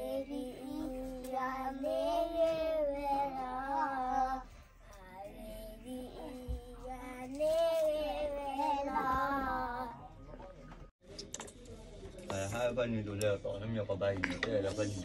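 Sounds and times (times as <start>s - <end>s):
girl singing: 0.0s - 10.0s.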